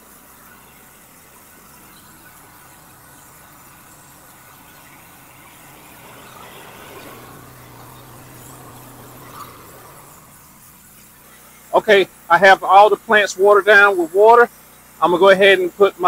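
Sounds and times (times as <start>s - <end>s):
water spray hissing: 0.0s - 12.4s
pressure washer engine running: 0.0s - 16.0s.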